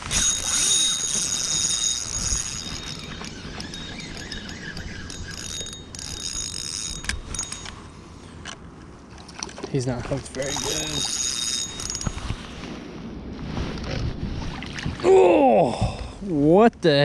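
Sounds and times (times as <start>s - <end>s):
fishing reel whirring: 0.0s - 8.0s, 10.3s - 12.5s.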